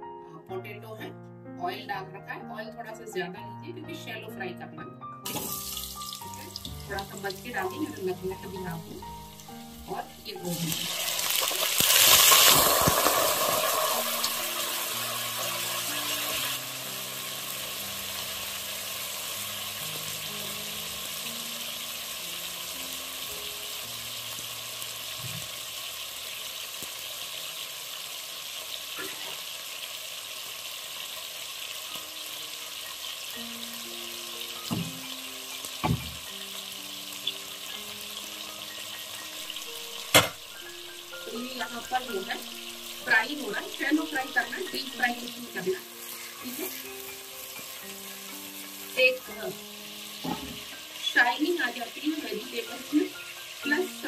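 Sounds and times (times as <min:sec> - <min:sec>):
vegetables sizzling in hot oil: 0:05.2 - 0:54.0
sharp oil pops: 0:40.1 - 0:40.5.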